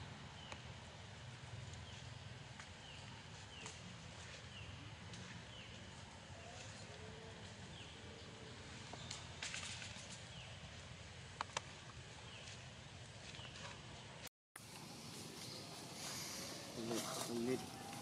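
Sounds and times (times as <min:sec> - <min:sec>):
dry leaves rustling: 0:12.3 - 0:18.0.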